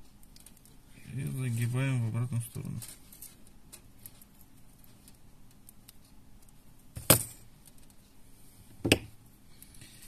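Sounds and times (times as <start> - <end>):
pliers set down on table: 7.0 - 7.4.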